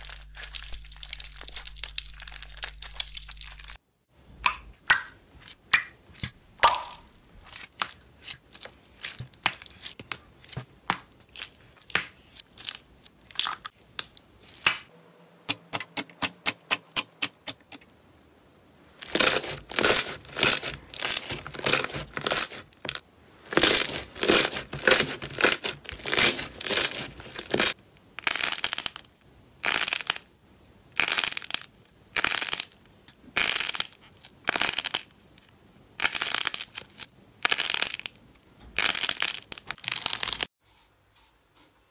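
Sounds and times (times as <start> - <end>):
slime squishing: 0.0 - 3.8, 4.5 - 14.8, 19.0 - 27.8.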